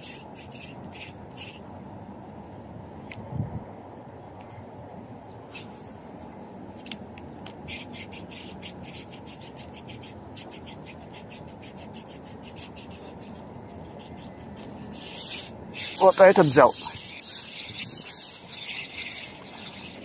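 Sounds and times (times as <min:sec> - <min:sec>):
fishing reel whirring: 0:14.9 - 0:20.0.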